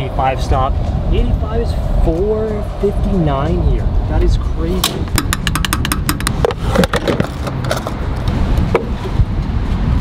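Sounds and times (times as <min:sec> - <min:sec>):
fuel cap ratcheting clicks: 0:04.8 - 0:08.0.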